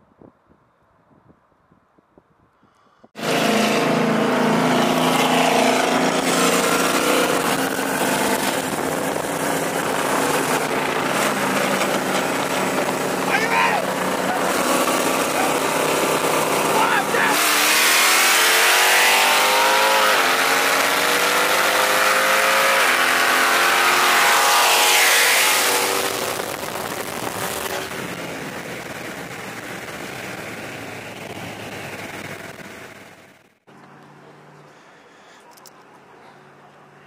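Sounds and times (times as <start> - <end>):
wind and road rush: 0.0 - 37.0
car engine at full throttle: 3.2 - 34.9.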